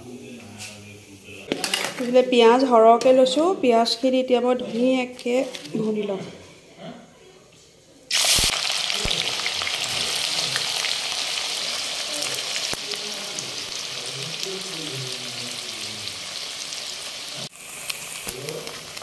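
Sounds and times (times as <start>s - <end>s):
onions sizzling in hot oil: 8.1s - 19.0s.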